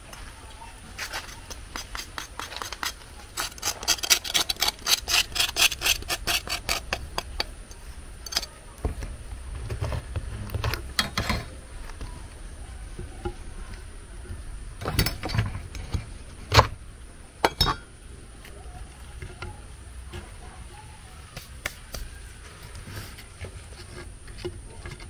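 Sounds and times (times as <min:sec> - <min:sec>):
scraping clicking strokes: 0:01.0 - 0:08.5.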